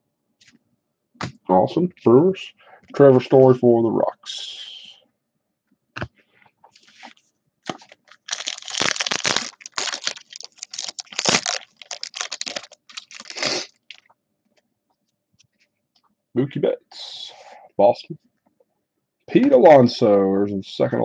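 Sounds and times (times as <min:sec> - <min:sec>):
foil wrapper tearing and crinkling: 0:07.6 - 0:14.1.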